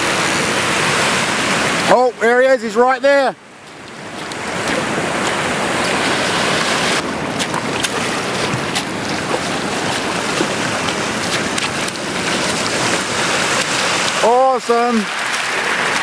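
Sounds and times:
waves washing over shingle: 0.0 - 16.0
fish splashing: 3.4 - 16.0.

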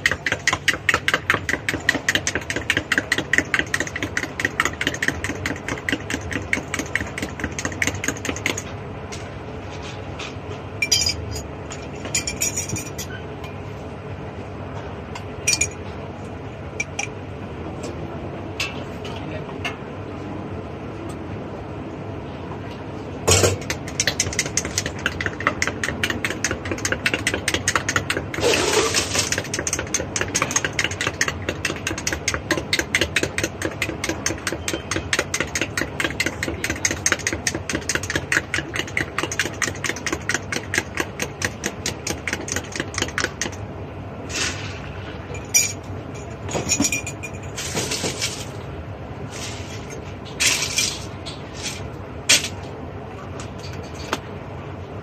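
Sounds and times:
glassware and utensils clattering: 10.8 - 13.2.

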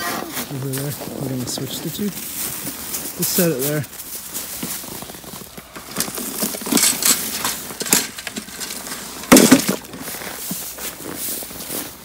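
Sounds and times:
rustles and scuffs on straw: 0.0 - 6.6, 9.9 - 12.0.

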